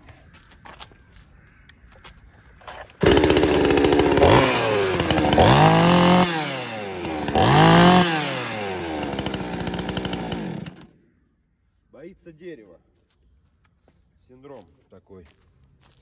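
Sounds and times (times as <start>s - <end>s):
chainsaw engine revving: 3.0s - 10.9s.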